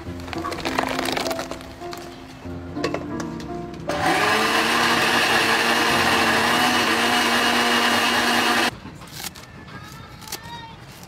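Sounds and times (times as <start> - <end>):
blender motor running: 3.9 - 8.7.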